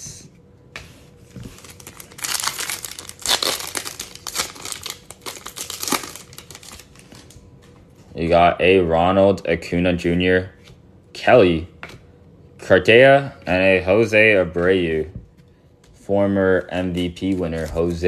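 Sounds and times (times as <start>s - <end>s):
foil wrapper crinkling: 1.5s - 7.4s.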